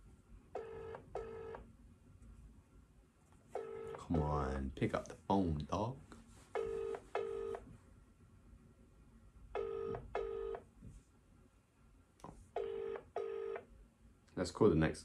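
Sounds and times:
telephone ringback tone: 0.6s - 1.6s, 6.6s - 7.6s, 9.6s - 10.6s, 12.6s - 13.6s.

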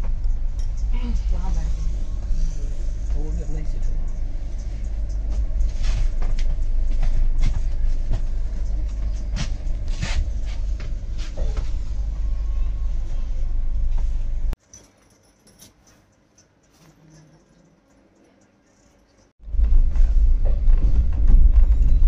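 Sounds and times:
train coach rumbling: 0.0s - 14.6s, 19.4s - 22.0s.

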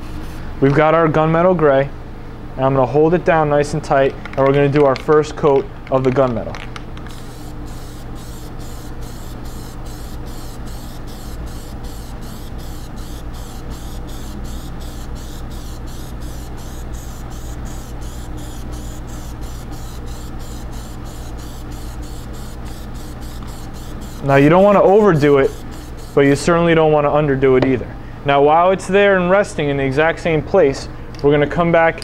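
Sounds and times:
steady low hum: 0.0s - 32.0s
aerosol spray hissing: 7.1s - 26.5s.

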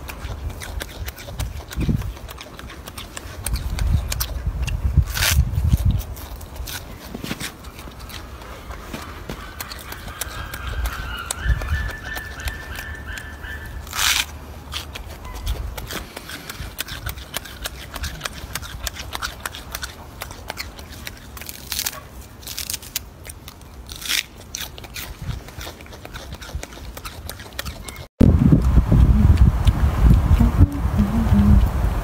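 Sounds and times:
monkey chewing crisp vegetable: 0.0s - 31.7s
low rumble: 28.2s - 32.0s.

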